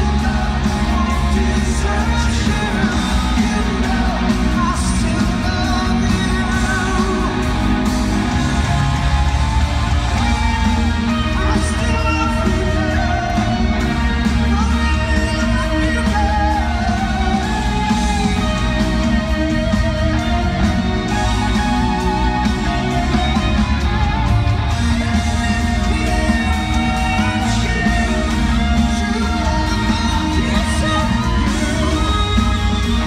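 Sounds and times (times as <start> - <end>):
lead singer singing: 0.0 - 33.0
live band playing: 0.0 - 33.0.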